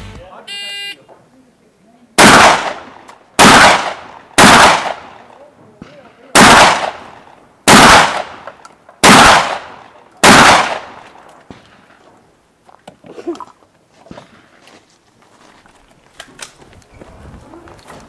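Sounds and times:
shotgun shots with echo: 2.2 - 5.2, 5.8 - 11.9.

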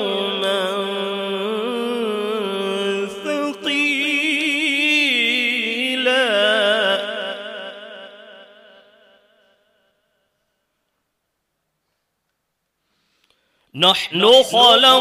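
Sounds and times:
man reciting melodically through microphone: 0.0 - 8.7, 13.7 - 15.0
short breath: 12.8 - 13.7.

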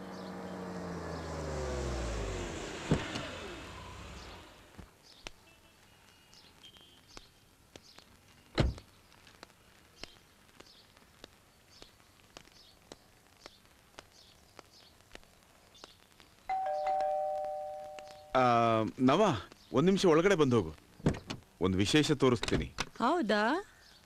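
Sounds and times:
car door slamming: 2.8 - 3.3
faint bird chirps: 5.0 - 11.0, 15.7 - 18.6.

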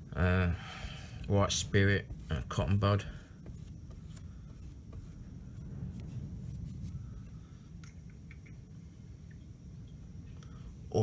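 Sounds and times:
paintbrush scratching on filler: 0.7 - 7.2
steady low rumble: 1.2 - 11.0.

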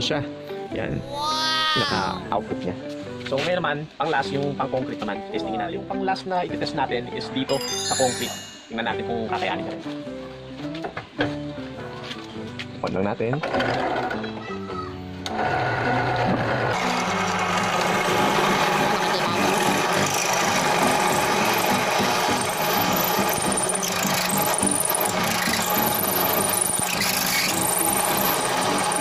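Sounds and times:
drill press motor humming: 15.2 - 29.0
drill bit grinding into concrete: 16.0 - 29.0.

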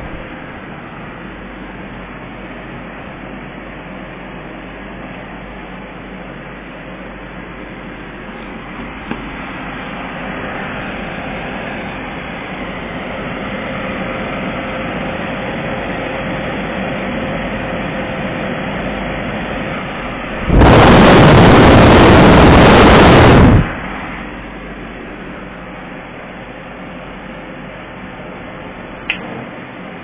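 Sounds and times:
air conditioner humming: 0.0 - 30.0
loud rush of noise: 19.5 - 26.0.

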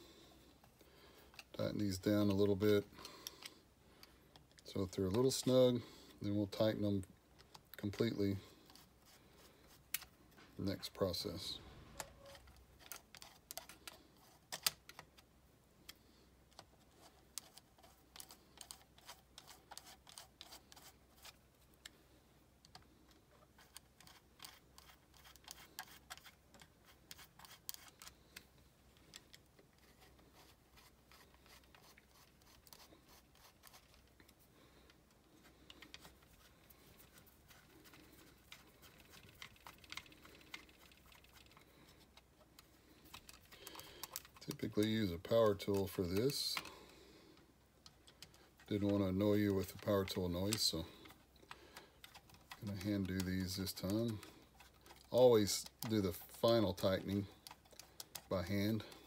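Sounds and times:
screwdriver clicks and scrapes: 22.6 - 46.8, 47.8 - 59.0.

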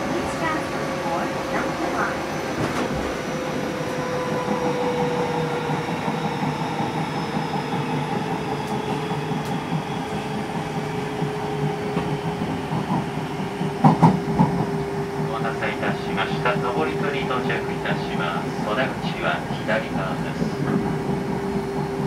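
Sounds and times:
electric train rumble and whine: 0.0 - 22.0
train wheels clacking: 0.0 - 22.0.

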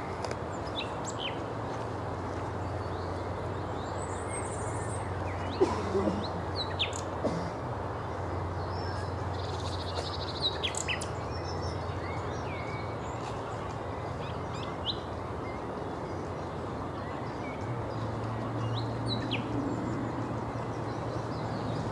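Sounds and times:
nightingale singing: 10.0 - 13.0.

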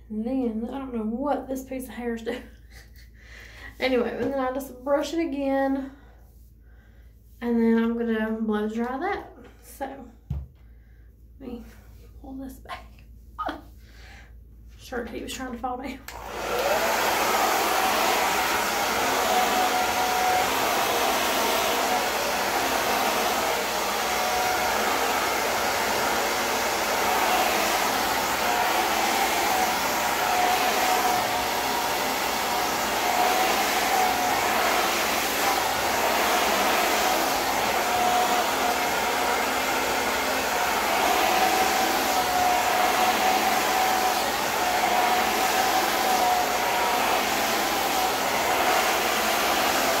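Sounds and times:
hair dryer running: 16.1 - 50.0.

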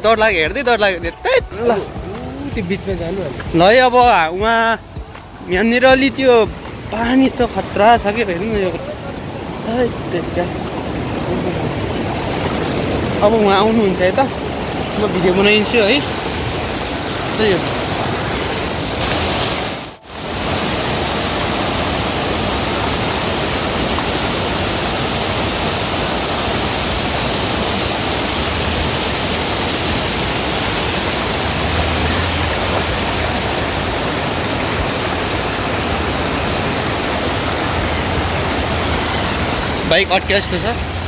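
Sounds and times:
stream water rushing over rocks: 0.0 - 41.0.

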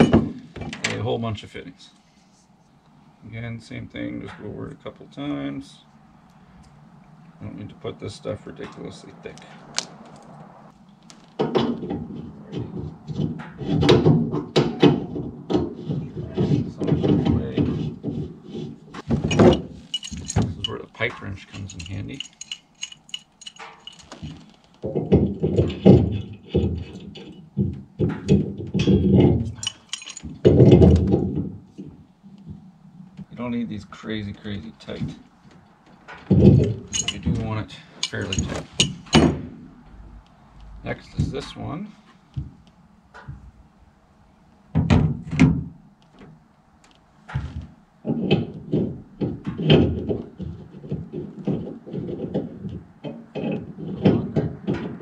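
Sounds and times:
heavy metal thunks: 19.0 - 20.9, 36.1 - 40.2
pipe wrench tightening fittings: 19.1 - 24.6, 29.5 - 30.4, 36.6 - 37.4, 38.0 - 39.2.

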